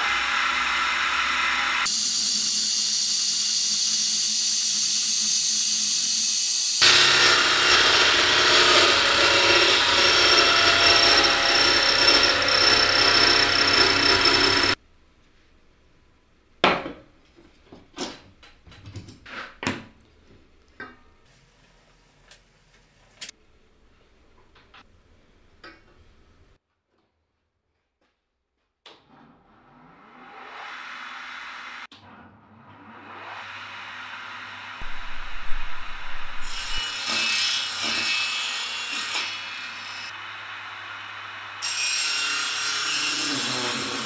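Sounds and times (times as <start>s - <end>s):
power tool running: 0.0s - 14.8s, 32.9s - 37.2s.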